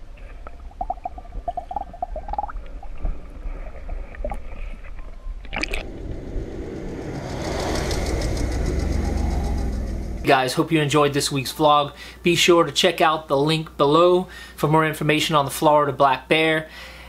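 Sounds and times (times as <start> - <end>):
underwater gurgling: 0.0 - 6.4
vehicle engine rumbling: 5.6 - 10.3.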